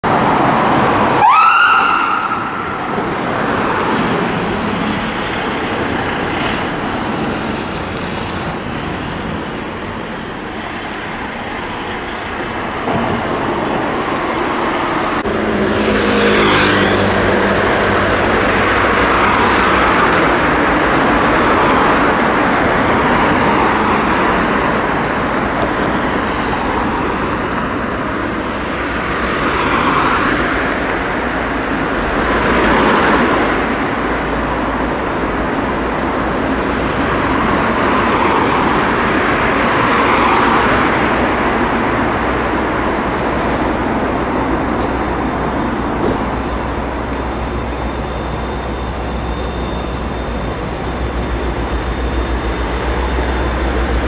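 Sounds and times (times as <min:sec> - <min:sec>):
fire engine running: 0:00.0 - 0:54.0
road traffic noise: 0:00.0 - 0:54.0
fire engine siren sweep: 0:00.2 - 0:05.3, 0:43.0 - 0:54.0.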